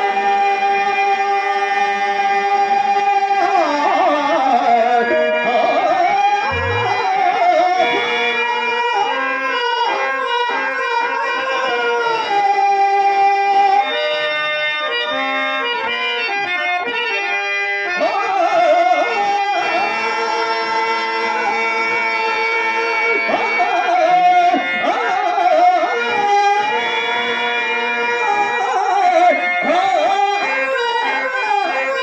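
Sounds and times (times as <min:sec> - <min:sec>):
harmonium playing: 0:00.0 - 0:32.0
person singing with wavering voice: 0:06.5 - 0:07.3.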